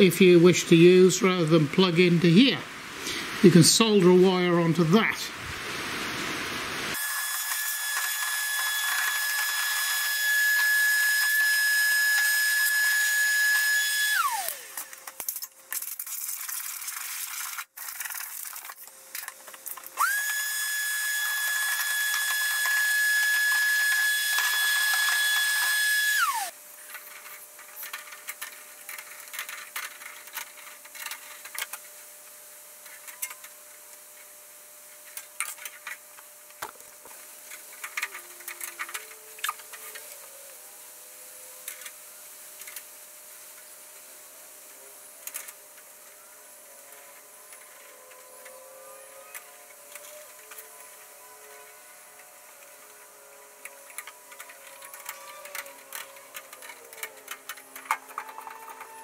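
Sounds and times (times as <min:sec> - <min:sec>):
vacuum cleaner running: 0:05.4 - 0:15.4, 0:18.9 - 0:59.0.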